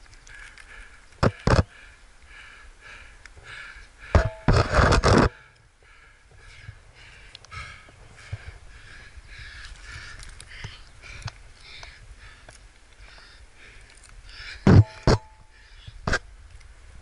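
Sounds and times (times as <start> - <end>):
scraping against rock: 4.2 - 5.4.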